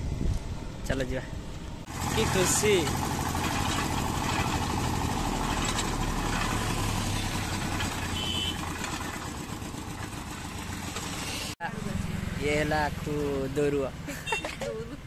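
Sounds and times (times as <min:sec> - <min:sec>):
juice crusher engine running: 0:01.9 - 0:11.6.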